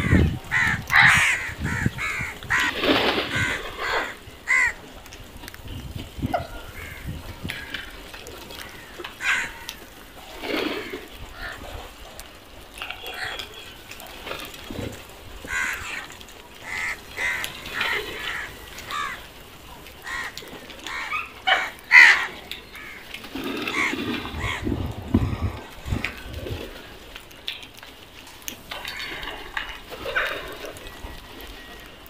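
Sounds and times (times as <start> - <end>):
crows cawing: 0.0 - 4.9, 6.4 - 10.0, 10.8 - 11.6, 13.0 - 13.6, 15.4 - 26.2, 28.7 - 29.8.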